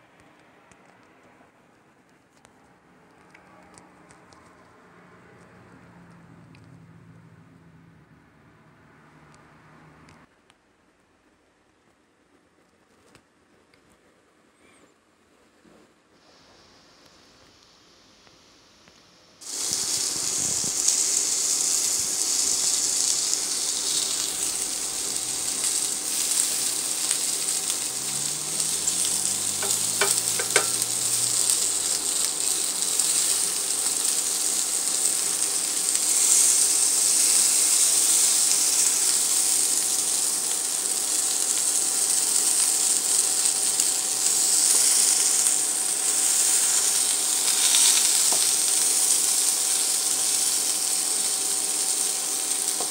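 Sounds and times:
vegetables sizzling in a frying pan: 19.4s - 52.9s.

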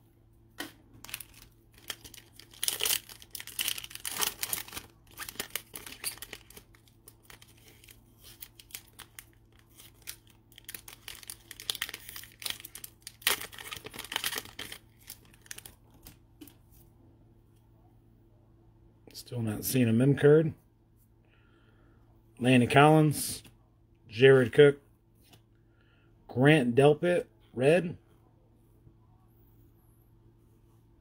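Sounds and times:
cards rustling: 0.6s - 16.6s
foil wrapper crinkling and tearing: 1.0s - 16.2s.

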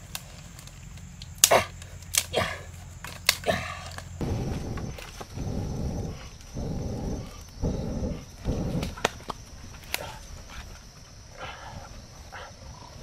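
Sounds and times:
wood fire crackling: 0.0s - 11.1s
man blowing on embers: 1.3s - 10.7s.

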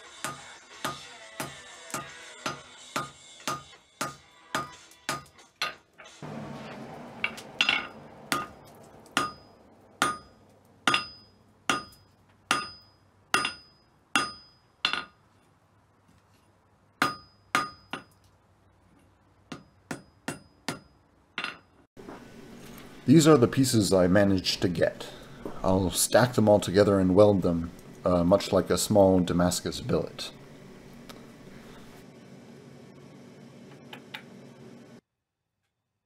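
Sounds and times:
hammer striking iron on anvil: 0.2s - 5.8s, 7.2s - 15.2s, 17.0s - 18.1s, 19.5s - 21.7s.

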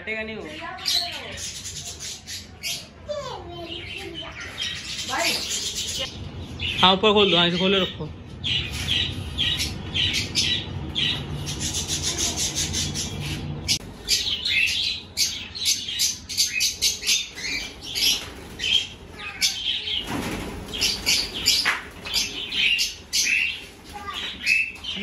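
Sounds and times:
budgerigars chirping: 3.8s - 19.9s
wings fluttering: 17.3s - 25.0s.

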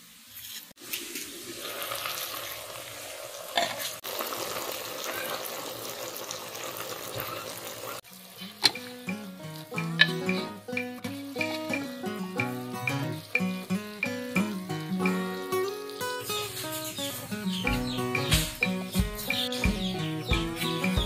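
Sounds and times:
food sizzling in pot: 0.0s - 21.0s
plucked string music: 8.1s - 21.0s.

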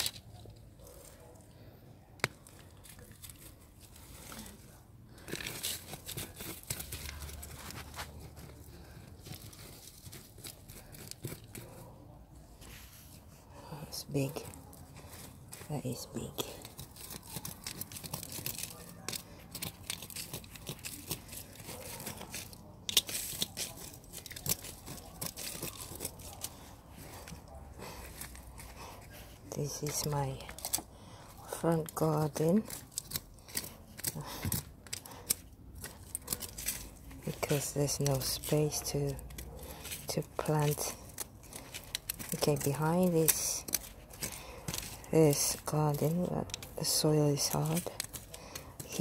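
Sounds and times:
roots crackling: 0.0s - 49.0s
hands digging through gritty soil: 2.2s - 49.0s
hands scraping in stony soil: 31.5s - 49.0s.

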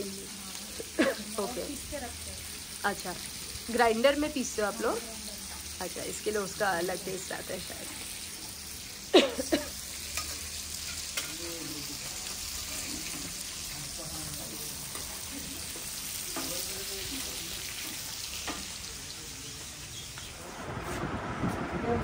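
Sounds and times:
fish sizzling in oil: 0.0s - 21.1s
spatula clanking on pan: 10.1s - 11.5s.

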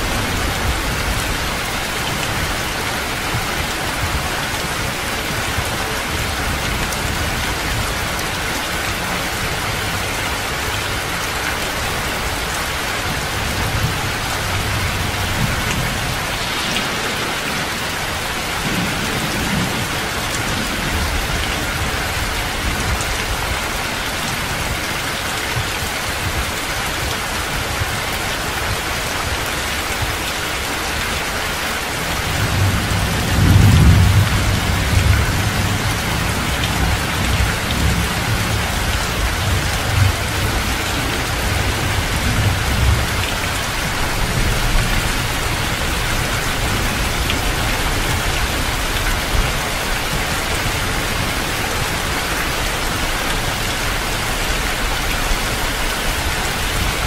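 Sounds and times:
heavy rain pouring: 0.0s - 57.0s
low rumble of thunder: 13.2s - 23.6s, 32.2s - 51.2s.

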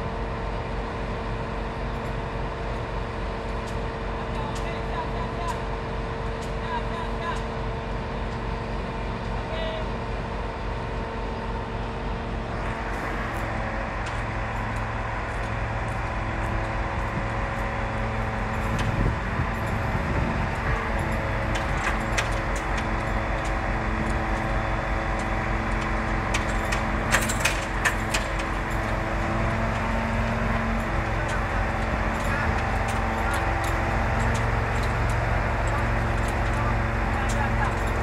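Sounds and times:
truck engine and hydraulics humming: 0.0s - 38.0s
sharp metallic clicks and knocks: 21.0s - 24.6s, 25.2s - 29.0s.

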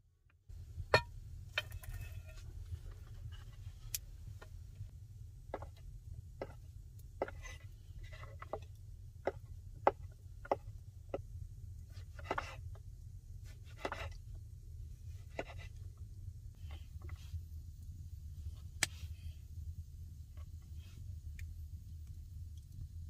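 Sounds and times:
knife scraping board: 12.0s - 12.6s, 13.7s - 14.2s, 15.3s - 15.7s.

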